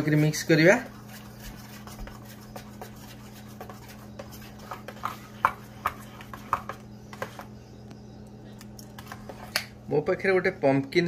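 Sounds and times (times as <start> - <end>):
spoon beating batter in metal bowl: 0.0 - 7.6, 8.6 - 9.8.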